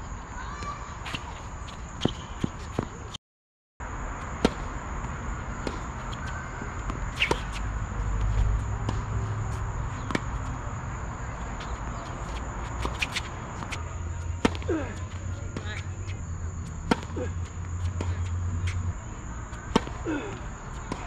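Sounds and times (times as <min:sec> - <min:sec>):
low outdoor rumble: 0:03.8 - 0:21.0
tennis balls struck by rackets: 0:04.2 - 0:21.0.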